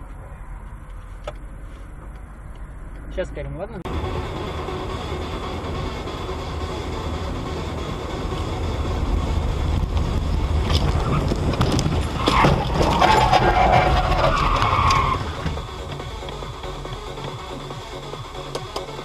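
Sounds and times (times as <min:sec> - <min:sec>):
car engine and road noise: 0:00.0 - 0:19.0.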